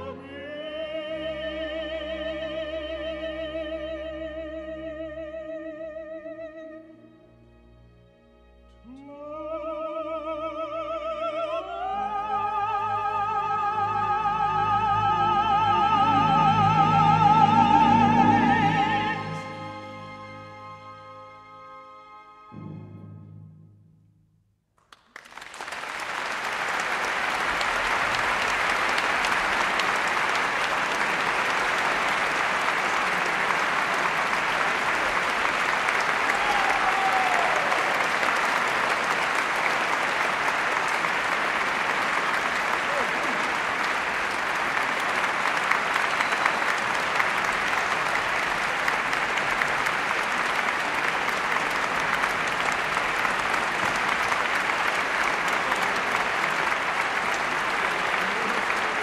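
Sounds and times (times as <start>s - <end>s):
audience applauding: 24.8s - 59.0s.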